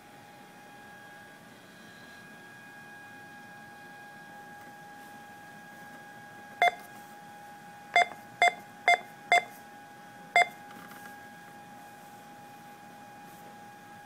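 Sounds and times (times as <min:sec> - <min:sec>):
faint steady hum: 0:00.0 - 0:14.0
short electronic beeps: 0:08.0 - 0:09.5.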